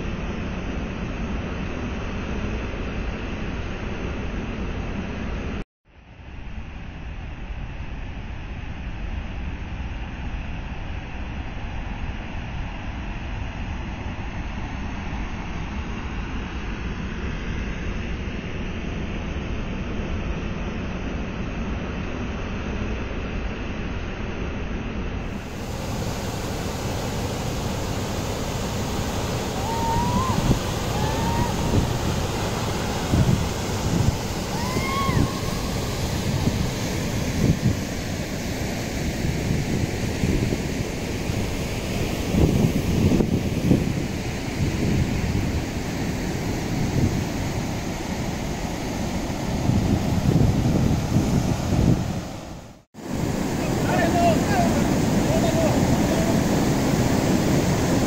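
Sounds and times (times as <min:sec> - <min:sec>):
waterfall rushing: 0:25.3 - 0:38.6, 0:53.0 - 0:58.0
wind buffeting microphone: 0:25.3 - 0:58.0
short rising falling calls: 0:29.2 - 0:33.2, 0:34.2 - 0:36.1.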